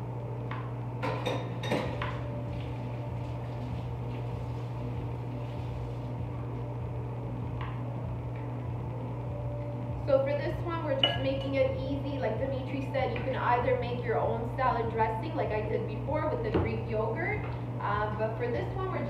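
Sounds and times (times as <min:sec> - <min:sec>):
steady low hum: 0:00.0 - 0:19.0
dishes clinking and clattering: 0:01.0 - 0:02.2, 0:11.0 - 0:11.6.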